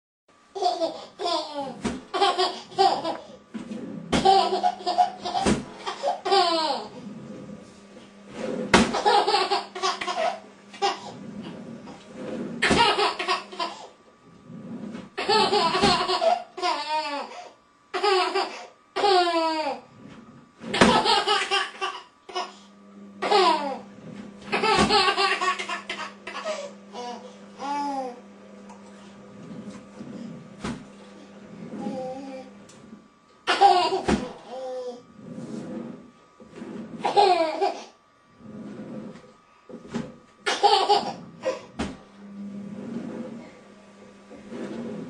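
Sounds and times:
toddler laughing: 0:00.6 - 0:03.4, 0:04.2 - 0:07.0, 0:08.9 - 0:11.2, 0:12.6 - 0:14.0, 0:15.2 - 0:19.8, 0:20.8 - 0:22.6, 0:23.2 - 0:23.8, 0:24.5 - 0:28.2, 0:33.5 - 0:35.0, 0:37.0 - 0:38.0, 0:40.5 - 0:41.8.

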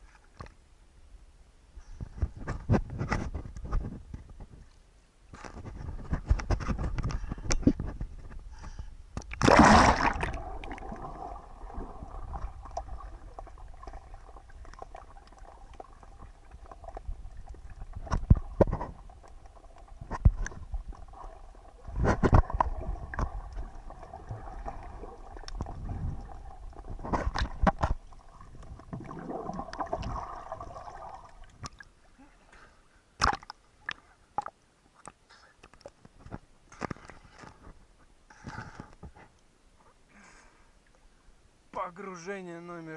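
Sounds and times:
muffled underwater sloshing: 0:08.1 - 0:32.8
camera plunging into water splash: 0:09.2 - 0:14.0.

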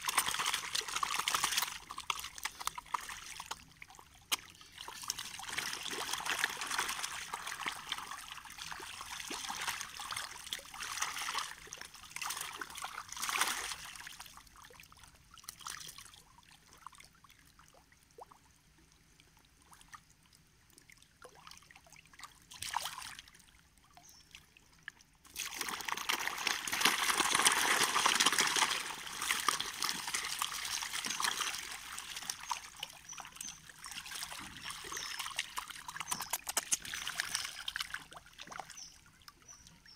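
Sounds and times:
fish splashing in water: 0:00.0 - 0:14.4, 0:25.3 - 0:39.0.

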